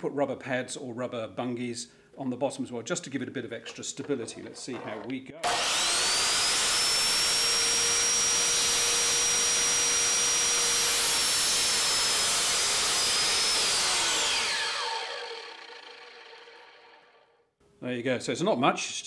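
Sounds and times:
mitre saw whining: 4.7 - 17.3.

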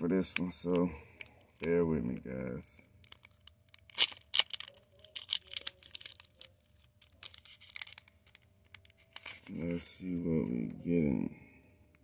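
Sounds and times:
foil wrapper crinkling and tearing: 3.0 - 9.8.

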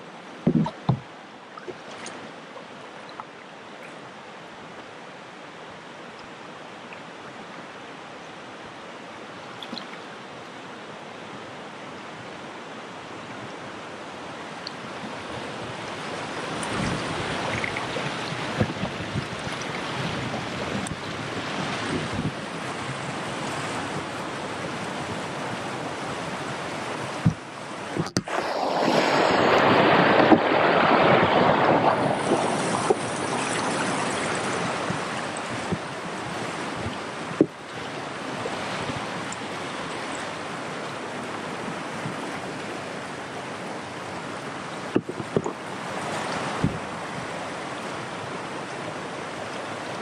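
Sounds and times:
rushing river water: 0.0 - 50.0
low thumps: 0.4 - 1.1.

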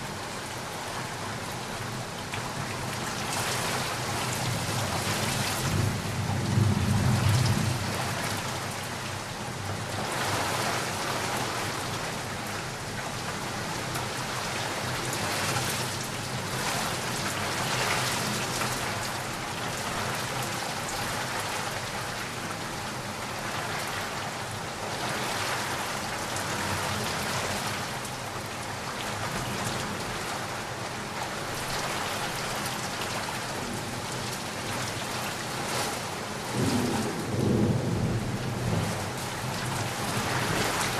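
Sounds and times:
heavy rain falling: 0.0 - 40.9
low rumble of thunder: 4.4 - 8.8, 36.4 - 40.9.

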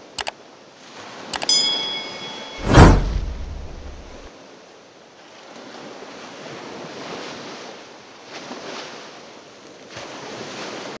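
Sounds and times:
waves washing: 0.8 - 4.3.

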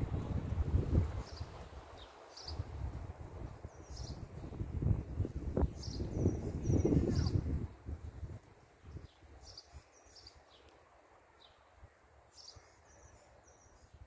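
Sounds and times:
wind gusting on microphone: 0.0 - 10.2
small bird chirping and trilling: 1.2 - 2.7, 3.7 - 4.4, 5.6 - 7.5, 8.8 - 10.7.

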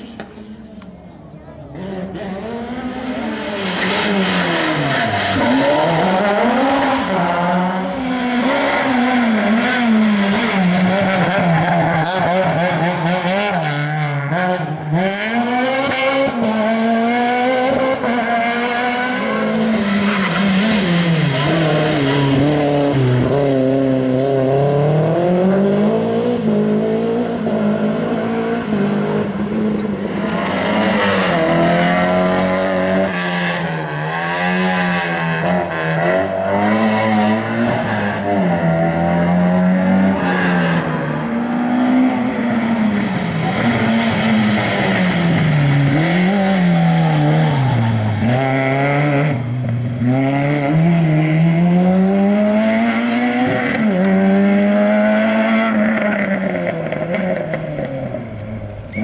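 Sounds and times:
rally car engines revving: 0.0 - 59.0.

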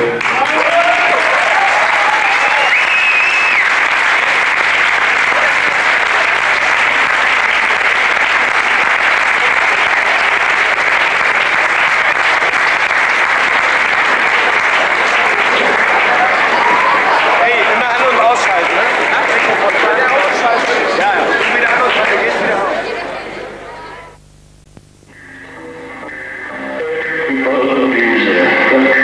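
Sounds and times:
audience applauding: 0.0 - 23.6.

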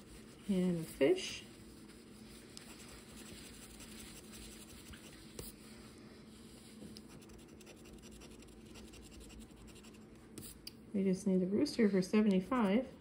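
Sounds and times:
scratching a lottery ticket: 7.1 - 10.0.

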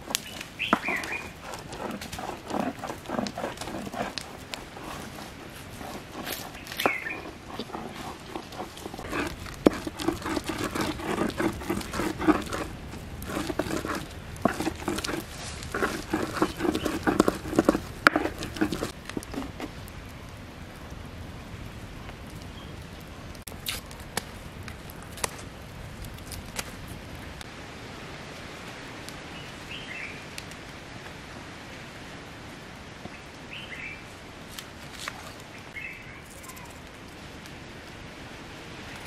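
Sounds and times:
stone scraping on grinding stone: 0.1 - 19.7.

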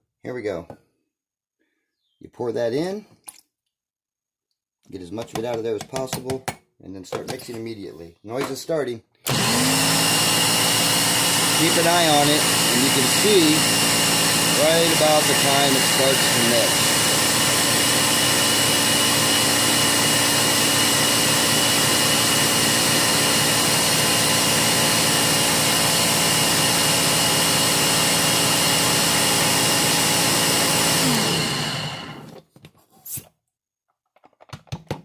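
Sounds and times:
blender running: 9.3 - 32.4.

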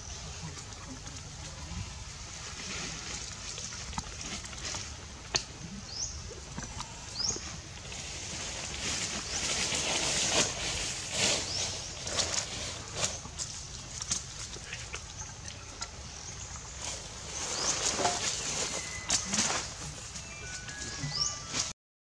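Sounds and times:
rustling: 7.8 - 14.8, 16.7 - 21.7
high rising chirps: 18.3 - 21.7.

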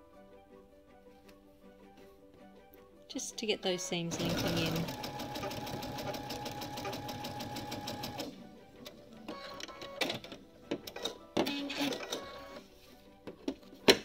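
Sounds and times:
sewing machine stitching: 4.1 - 8.3.

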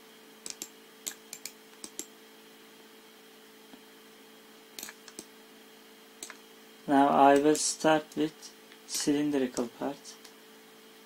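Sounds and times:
low electrical hum: 0.0 - 11.0
computer mouse and key clicks: 0.4 - 2.1, 4.8 - 5.3.

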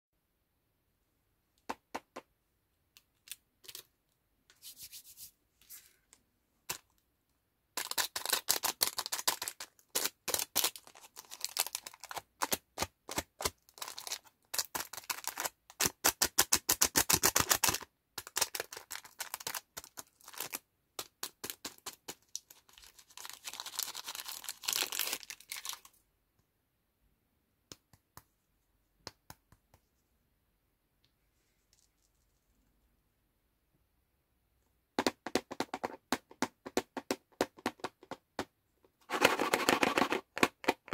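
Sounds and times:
plastic wrapper crinkling: 7.8 - 12.6, 17.4 - 20.6, 22.2 - 26.0.

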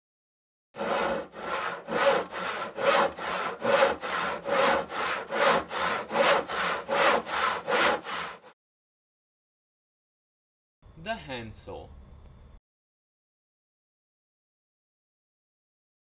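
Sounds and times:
handsaw cutting through wood: 0.8 - 8.6.

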